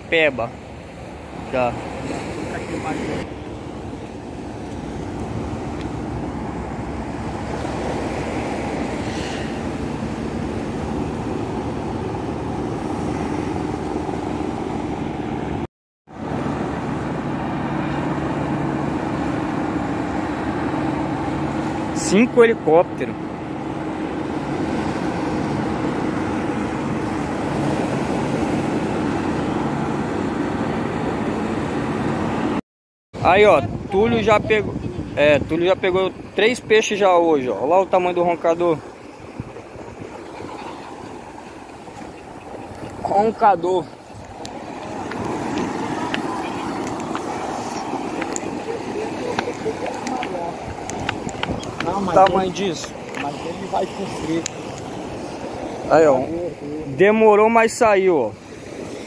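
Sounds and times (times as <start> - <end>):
sea surf rushing on rocks: 0.0 - 32.6, 33.2 - 59.0
wind buffeting microphone: 33.2 - 57.0
helicopters flying past: 37.4 - 56.0.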